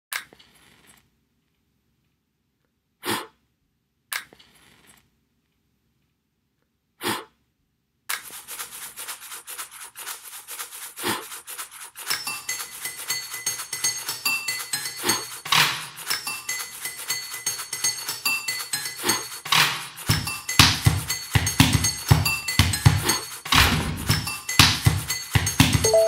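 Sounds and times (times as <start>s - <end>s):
small hard pieces rattling: 8.2s - 20.1s.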